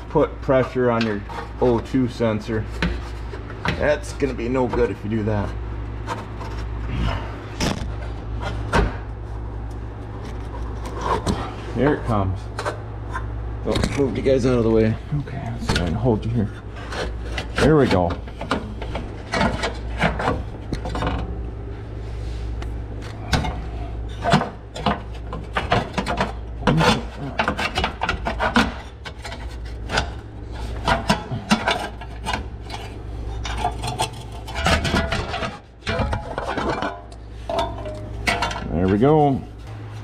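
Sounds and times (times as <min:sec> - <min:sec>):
steady low hum: 0:00.0 - 0:40.0
sheet metal scraping and clicking: 0:23.3 - 0:39.0.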